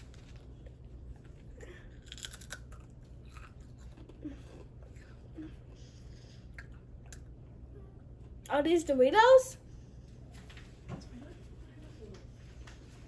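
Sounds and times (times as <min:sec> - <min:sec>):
potato chip crunching: 0:01.2 - 0:04.7.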